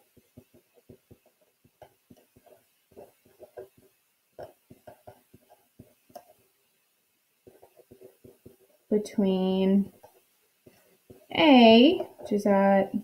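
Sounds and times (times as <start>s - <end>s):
pen writing on paper: 0.1s - 6.4s, 7.4s - 8.8s.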